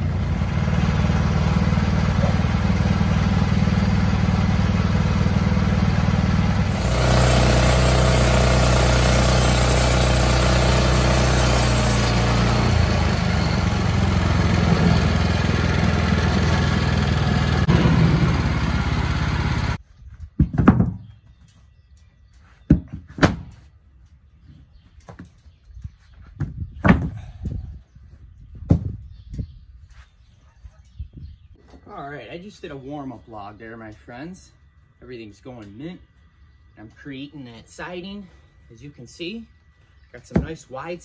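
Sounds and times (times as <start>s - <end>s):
sawmill engine running: 0.0s - 19.8s
band blade rasping through log: 6.7s - 13.1s.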